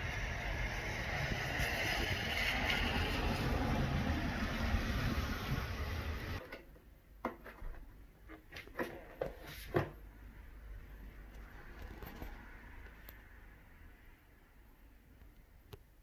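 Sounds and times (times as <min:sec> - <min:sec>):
rain and wind: 0:00.0 - 0:06.4.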